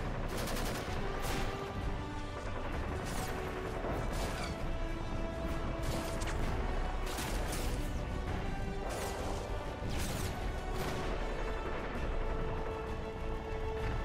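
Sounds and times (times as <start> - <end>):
gunfire: 0.0 - 1.8, 2.6 - 4.7, 5.7 - 8.0, 8.7 - 11.6
action music: 0.0 - 14.0.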